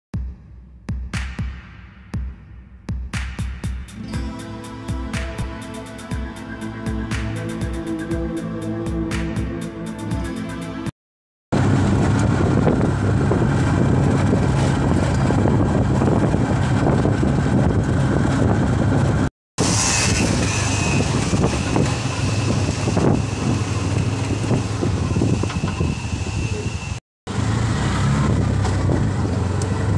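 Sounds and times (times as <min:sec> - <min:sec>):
road noise: 0:11.5 - 0:29.9
vehicle engine hum: 0:11.5 - 0:29.9.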